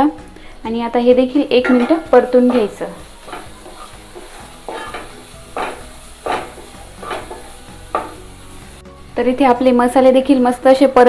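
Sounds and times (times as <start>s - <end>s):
paste sizzling in oil: 1.6s - 9.2s
wooden spatula scraping pot: 1.7s - 7.6s.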